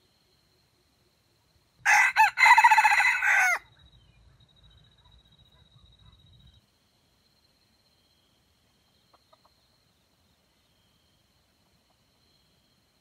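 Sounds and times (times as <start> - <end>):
rooster crowing: 1.8 - 3.7.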